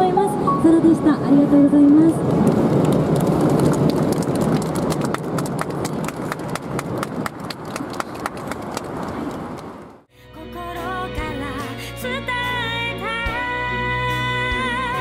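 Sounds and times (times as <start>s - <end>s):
crowd clapping: 2.5s - 9.8s.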